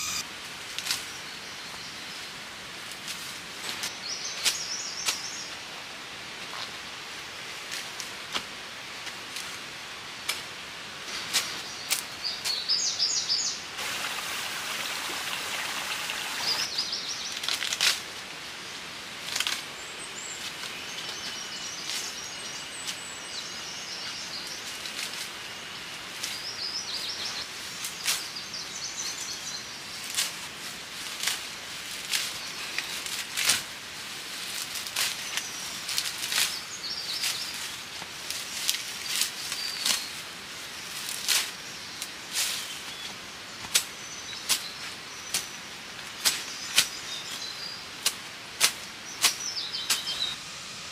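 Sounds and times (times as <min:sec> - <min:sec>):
small birds chirping: 0:00.0 - 0:00.2, 0:11.5 - 0:17.4, 0:35.1 - 0:37.8, 0:40.8 - 0:47.9, 0:49.0 - 0:50.5
fern fronds rustling: 0:00.0 - 0:12.8, 0:13.7 - 0:50.9.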